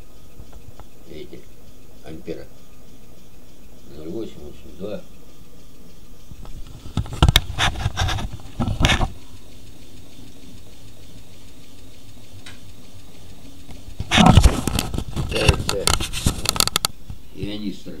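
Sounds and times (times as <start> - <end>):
electric motor wheel humming: 0.0 - 18.0
loud scraping knocks: 6.4 - 9.1, 13.7 - 17.2.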